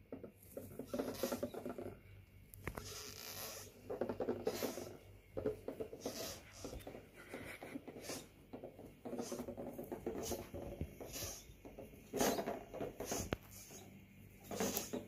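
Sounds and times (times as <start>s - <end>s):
cardboard toy dragged across carpet: 5.9s - 8.3s.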